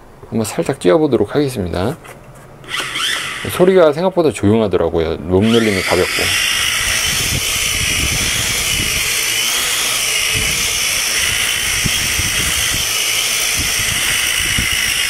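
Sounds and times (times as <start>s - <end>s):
quadcopter drone hovering: 2.7s - 3.4s, 5.4s - 15.0s.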